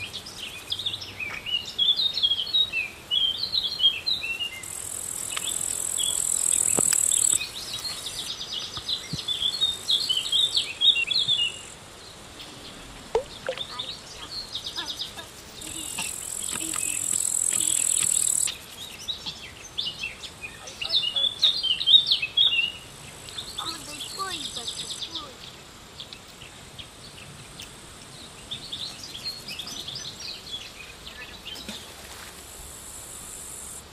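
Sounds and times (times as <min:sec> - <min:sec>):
insect trill: 0:00.0 - 0:31.5, 0:32.4 - 0:33.9
birds chirping: 0:00.0 - 0:31.9.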